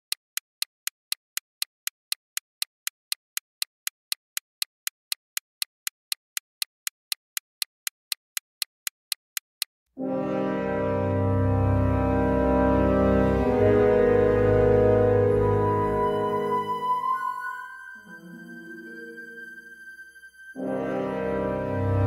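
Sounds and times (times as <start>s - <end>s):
clock ticking: 0.0s - 9.7s
music with low sustained notes: 10.0s - 22.0s.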